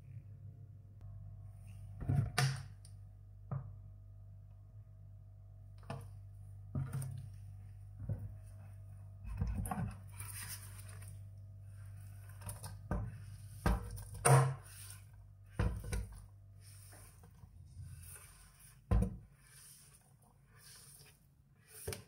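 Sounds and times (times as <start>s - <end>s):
spatula scraping cutting board: 11.8s - 22.0s.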